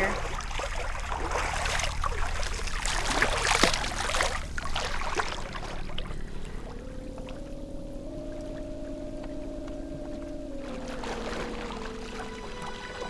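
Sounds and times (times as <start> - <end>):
pool water splashing and dripping: 0.0 - 7.4.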